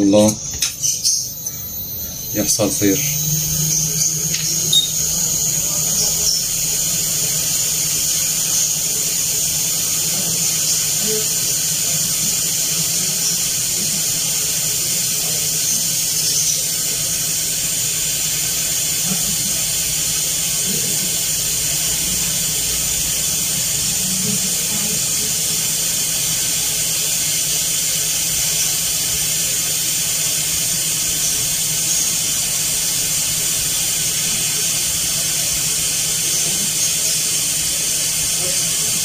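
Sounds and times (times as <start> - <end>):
hot air station hissing: 0.0 - 39.0
low hum: 0.3 - 8.4.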